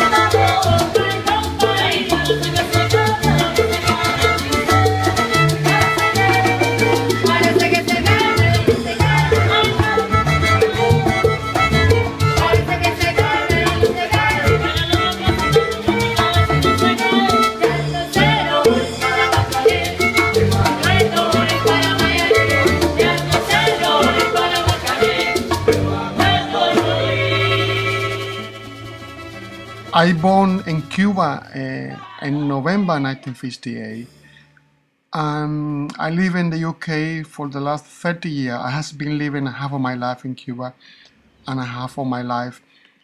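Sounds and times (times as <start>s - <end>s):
hand percussion: 0.0s - 31.2s
violin: 0.0s - 31.3s
bass line: 0.0s - 34.4s
salsa band playing: 0.0s - 34.4s
guitar: 0.0s - 36.0s
man singing: 12.3s - 15.0s, 18.1s - 28.4s, 29.9s - 34.1s.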